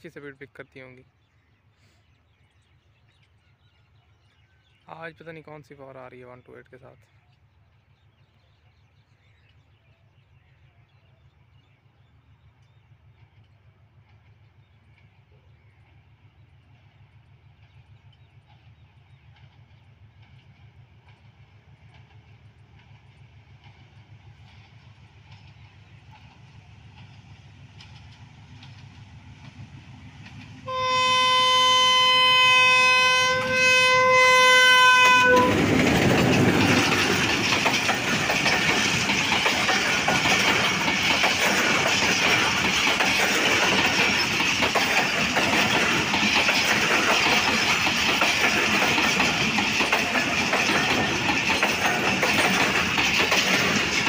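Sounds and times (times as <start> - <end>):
diesel locomotive rumble: 4.9 - 54.0
train wheels rushing on rails: 11.3 - 54.0
multi-tone air horn blasts: 30.6 - 35.6.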